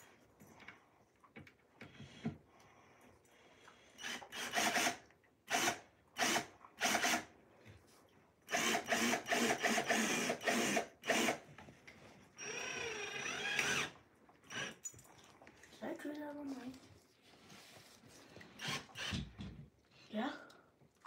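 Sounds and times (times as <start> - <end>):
cordless drill drilling: 4.0 - 7.3, 8.5 - 11.5, 12.4 - 14.8, 18.6 - 19.5.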